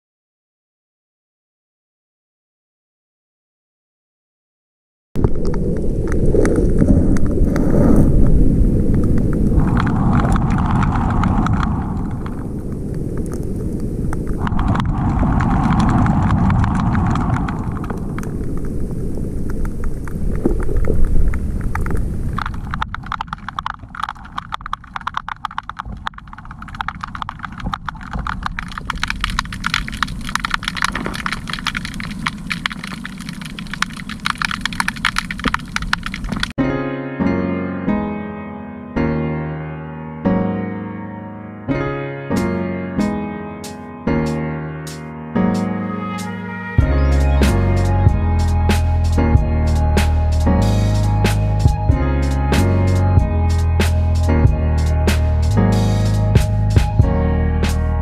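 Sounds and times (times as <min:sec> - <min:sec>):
low rumble of water noise: 0:05.2 - 0:36.6, 0:44.1 - 0:58.0
lure rattling underwater: 0:09.0 - 0:12.4, 0:14.3 - 0:18.7, 0:19.5 - 0:36.5.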